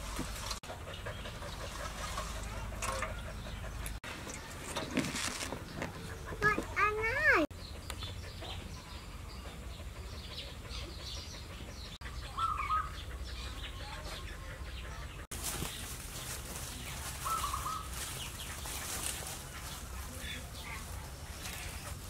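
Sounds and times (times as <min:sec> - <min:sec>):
small birds chirping: 0:00.6 - 0:22.0.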